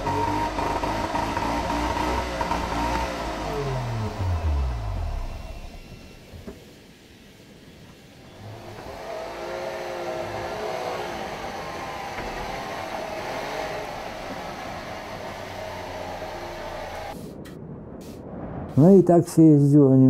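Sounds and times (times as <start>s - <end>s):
two-stroke engine running: 0.0s - 6.4s, 8.3s - 17.2s.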